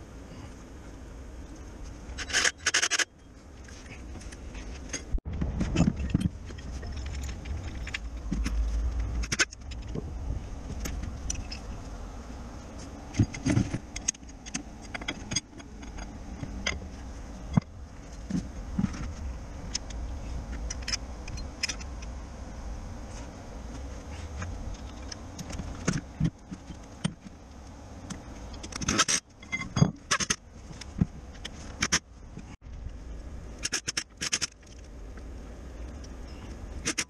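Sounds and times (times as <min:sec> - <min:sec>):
metal tools clinking and scraping: 0:02.2 - 0:09.9.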